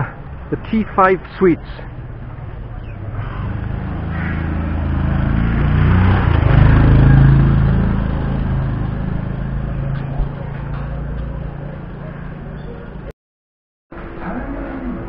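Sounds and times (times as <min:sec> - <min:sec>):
motorbike engine passing by: 0:01.9 - 0:12.9.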